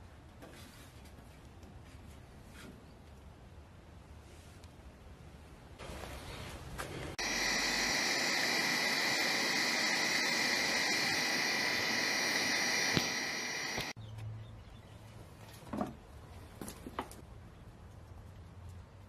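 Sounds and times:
angle grinder whine: 0:07.2 - 0:14.0.

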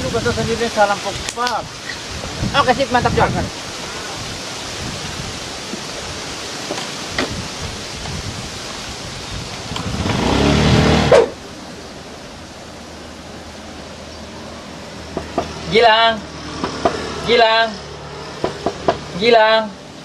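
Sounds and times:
background hiss: 0:00.0 - 0:20.0
scooter engine revving: 0:09.6 - 0:11.4.

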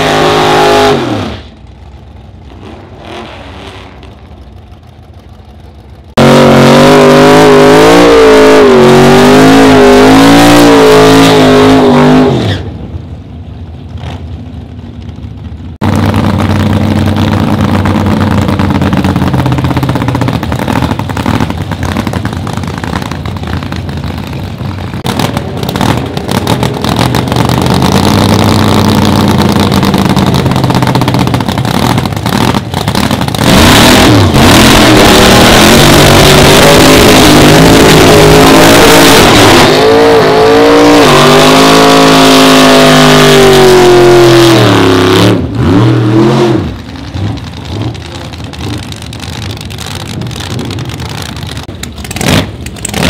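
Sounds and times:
engine burnout at high revs: 0:00.0 - 0:01.6, 0:06.1 - 0:12.7, 0:15.8 - 0:53.0
drag car engine idling: 0:01.5 - 0:02.6, 0:03.8 - 0:06.2, 0:12.9 - 0:33.5, 0:46.8 - 0:53.0
engine rev blips: 0:25.0 - 0:46.8.

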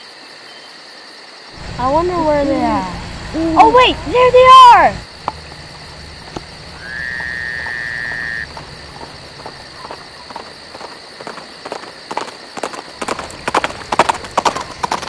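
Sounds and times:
crickets chirping: 0:00.0 - 0:15.0
high whistle-like tone: 0:06.8 - 0:08.5.

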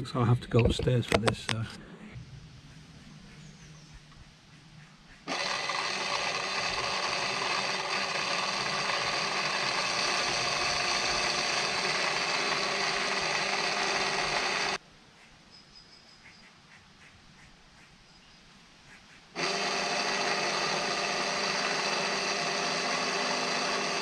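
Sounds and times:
motor and gearbox whining: 0:05.3 - 0:14.8, 0:19.4 - 0:24.0.

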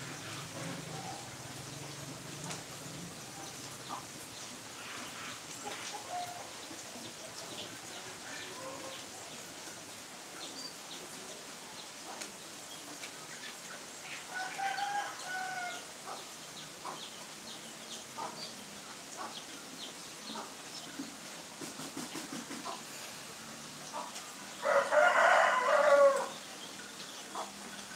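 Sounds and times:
faint steady hiss: 0:00.0 - 0:27.9
chicken calls: 0:03.5 - 0:09.4, 0:12.1 - 0:17.1, 0:23.9 - 0:26.6
rooster crowing: 0:14.3 - 0:15.9, 0:24.6 - 0:26.4.

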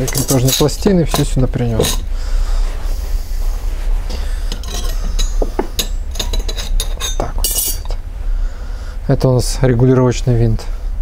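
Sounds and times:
metal clutch parts clinking: 0:00.0 - 0:02.1, 0:04.5 - 0:08.0
steady low hum: 0:00.0 - 0:11.0.

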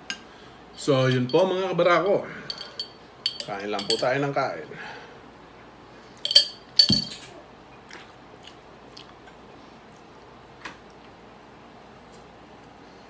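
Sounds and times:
glass jar clinking: 0:01.0 - 0:01.5, 0:02.5 - 0:04.2, 0:06.2 - 0:07.2
chewing sounds: 0:07.7 - 0:11.2.

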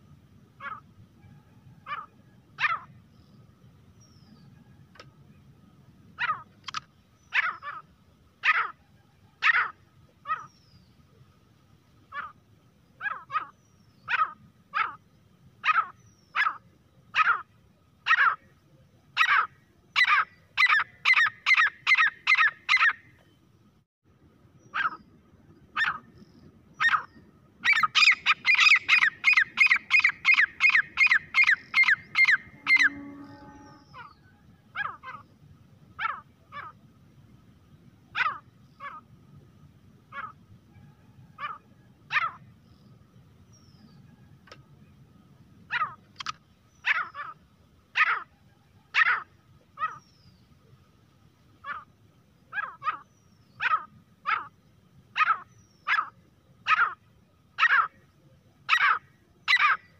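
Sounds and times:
francolin calling: 0:19.2 - 0:23.1, 0:24.6 - 0:35.4, 0:51.6 - 0:59.9.

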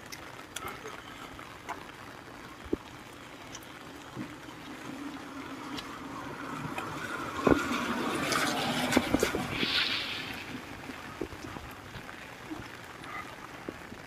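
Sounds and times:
cars passing on wet road: 0:02.8 - 0:14.0.

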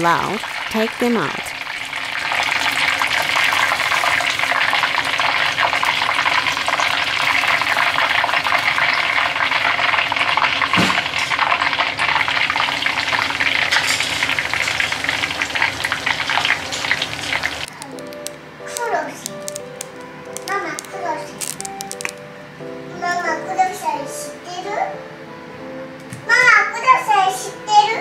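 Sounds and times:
food deep-frying in oil: 0:00.0 - 0:22.3.

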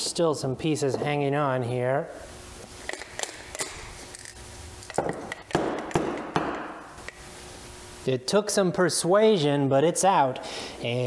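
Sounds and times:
knocks on impact wrench housing: 0:05.0 - 0:06.8.

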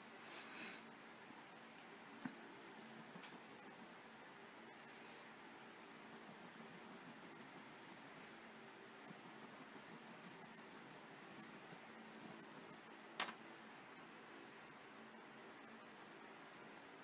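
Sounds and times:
colored pencil scratching on paper: 0:02.8 - 0:04.0, 0:06.0 - 0:08.4, 0:09.0 - 0:12.8.

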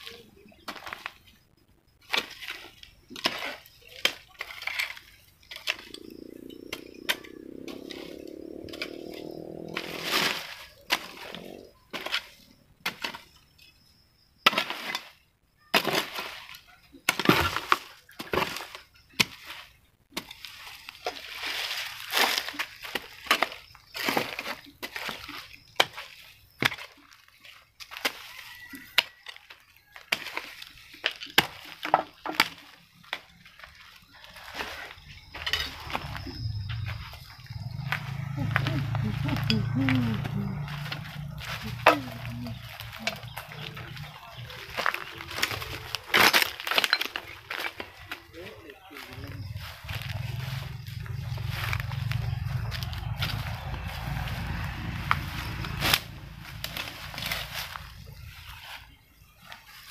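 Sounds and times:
droning sound rising in pitch: 0:05.8 - 0:10.2, 0:34.8 - 0:46.0, 0:49.2 - 0:58.4.

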